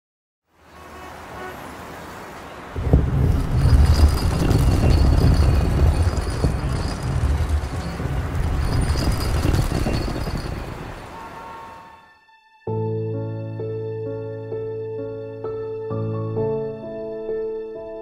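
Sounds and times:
soft piano music: 0:12.7 - 0:18.0.

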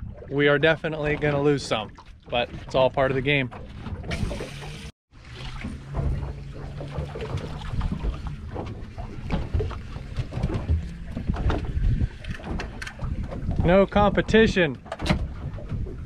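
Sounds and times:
water noise: 0:00.0 - 0:16.0
outboard motor idling: 0:01.2 - 0:16.0
wind buffeting microphone: 0:05.8 - 0:16.0.

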